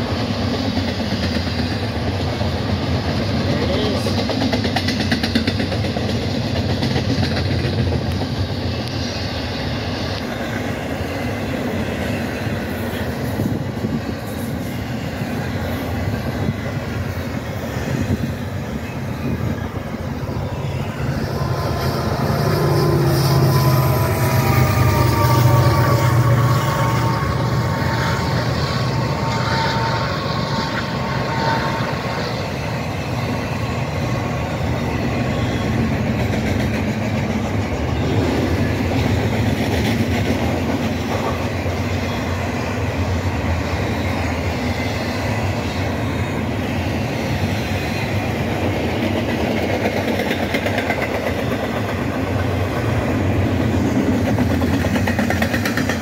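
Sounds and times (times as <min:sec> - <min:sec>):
diesel locomotive engines: 0:00.0 - 0:56.0
train wheels rumbling and clattering: 0:00.0 - 0:56.0
high wheel squeal: 0:18.0 - 0:36.2.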